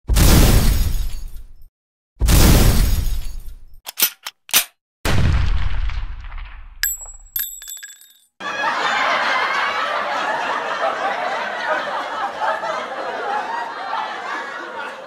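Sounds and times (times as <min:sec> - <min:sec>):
deep boom: 0:05.1 - 0:06.8
crowd talking and laughing: 0:08.4 - 0:15.0.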